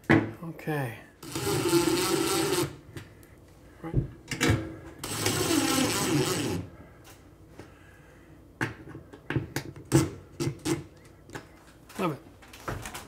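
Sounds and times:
cordless drill driving screw: 0:01.2 - 0:02.8, 0:05.0 - 0:06.6.

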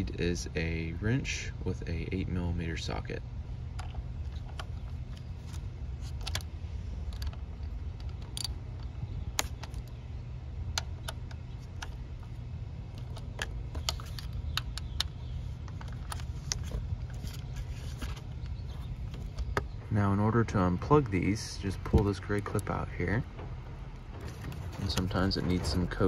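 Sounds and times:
steady low rumble: 0:00.0 - 0:26.0
hand tools clicking and tapping: 0:13.0 - 0:16.7.

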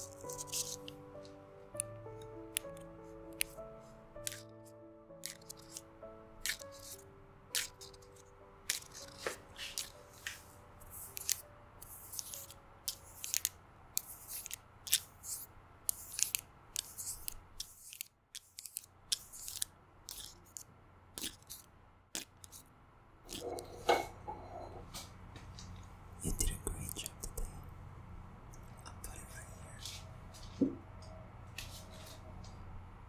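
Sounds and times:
acrylic nails clicking and scratching: 0:00.0 - 0:01.2, 0:02.5 - 0:03.6, 0:04.2 - 0:04.6, 0:05.2 - 0:10.0, 0:10.8 - 0:22.6, 0:23.3 - 0:23.7, 0:26.3 - 0:27.5, 0:28.6 - 0:29.4.

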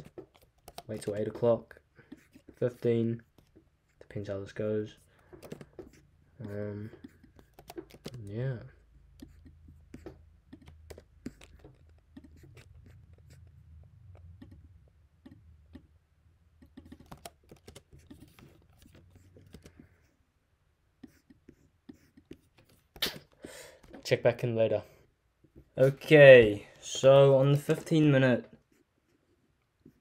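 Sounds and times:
computer keyboard typing: 0:00.0 - 0:01.3, 0:05.3 - 0:08.3, 0:09.1 - 0:13.5, 0:14.1 - 0:15.9, 0:16.6 - 0:19.9.

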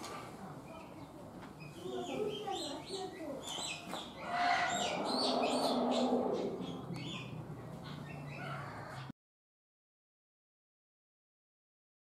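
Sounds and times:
small birds chirping: 0:00.4 - 0:09.1
broad rushing noise: 0:04.7 - 0:08.0.

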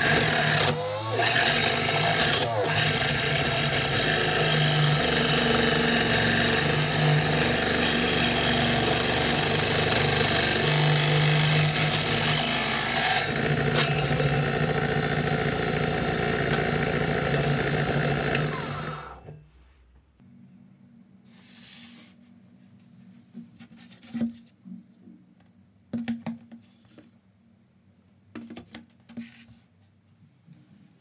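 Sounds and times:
table saw cutting wood: 0:00.0 - 0:19.4.

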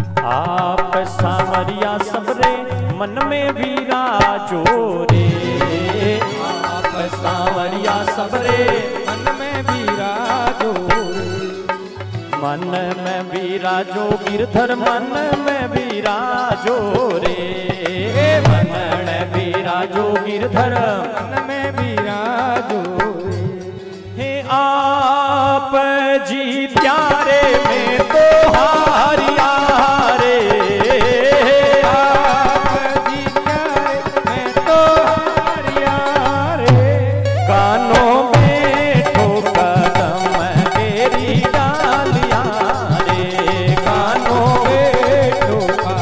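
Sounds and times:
wavering devotional melody: 0:00.0 - 0:46.0
hand drum beat: 0:26.8 - 0:46.0.

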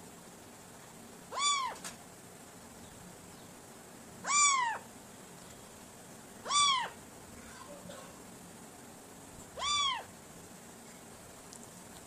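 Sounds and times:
cat meowing: 0:01.3 - 0:01.8, 0:04.2 - 0:04.8, 0:06.4 - 0:07.0, 0:09.6 - 0:10.1.

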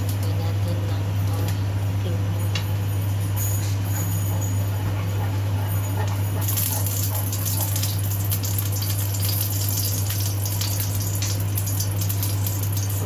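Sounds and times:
steady low hum: 0:00.0 - 0:13.0
oil crackling and spitting in wok: 0:06.4 - 0:13.0.

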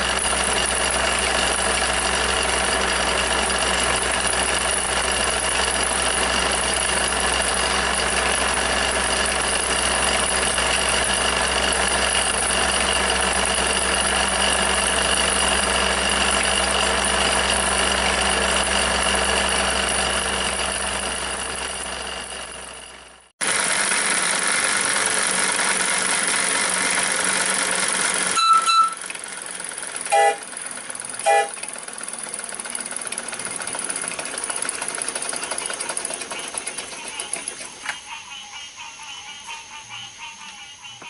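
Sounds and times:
toy steam engine running: 0:00.0 - 0:41.0.

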